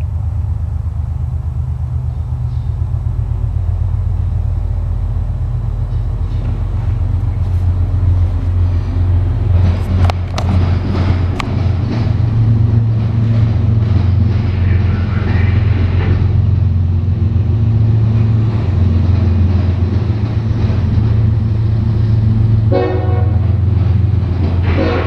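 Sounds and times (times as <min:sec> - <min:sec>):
freight train rumbling past: 0:00.0 - 0:25.0
train horn toot: 0:22.7 - 0:23.7, 0:24.6 - 0:25.0.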